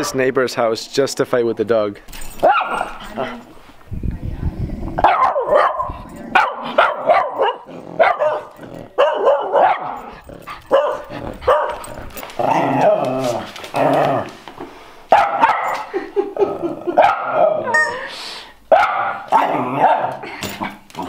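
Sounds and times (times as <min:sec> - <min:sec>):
dogs barking: 0:02.4 - 0:03.1, 0:05.0 - 0:12.3, 0:15.1 - 0:15.9, 0:16.9 - 0:17.8, 0:18.7 - 0:20.2.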